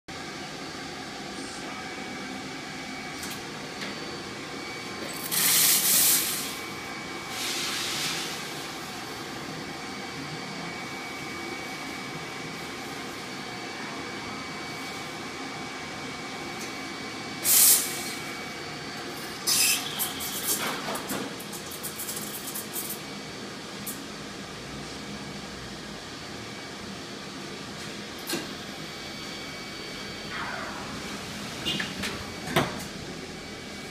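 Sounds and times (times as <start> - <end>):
machine hum: 0.1 - 17.4, 25.9 - 33.9
espresso machine steam hiss: 5.2 - 8.8, 17.4 - 18.4, 19.5 - 20.5.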